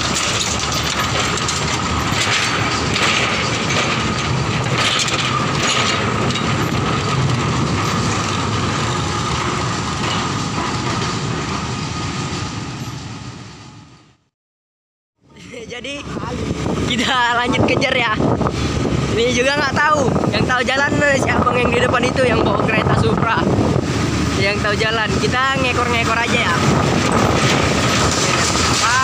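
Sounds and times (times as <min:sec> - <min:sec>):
train wheels clattering: 0:00.0 - 0:13.0, 0:23.6 - 0:29.0
locomotive high whine: 0:00.0 - 0:14.3, 0:15.2 - 0:29.0.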